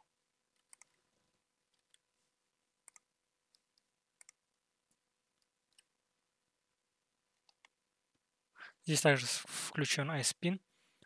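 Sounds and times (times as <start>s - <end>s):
computer mouse clicks: 0.6s - 1.0s, 2.8s - 4.6s, 7.4s - 7.8s.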